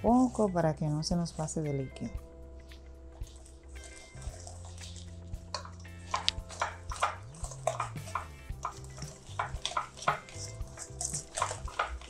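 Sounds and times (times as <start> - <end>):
soft background music: 0.0 - 12.0
whisk beating batter in metal bowl: 3.8 - 12.0.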